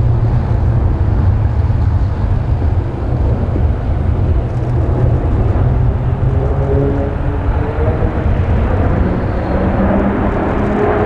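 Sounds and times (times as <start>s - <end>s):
propeller planes flying overhead: 0.0s - 11.0s.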